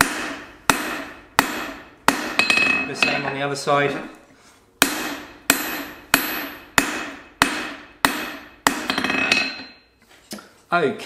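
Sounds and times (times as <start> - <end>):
hammer striking hot steel: 0.0 - 3.4, 4.8 - 9.9.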